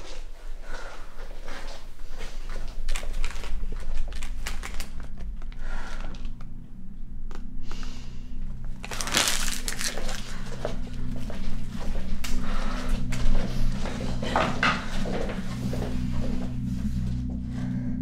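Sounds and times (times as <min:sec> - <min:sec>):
low steady hum: 0:00.0 - 0:18.0
paper crinkling and rustling: 0:02.4 - 0:06.4, 0:08.8 - 0:12.4.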